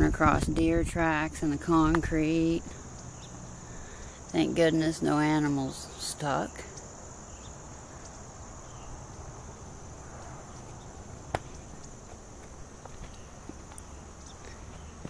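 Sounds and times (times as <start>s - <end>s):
insects chorus: 0.0s - 15.0s.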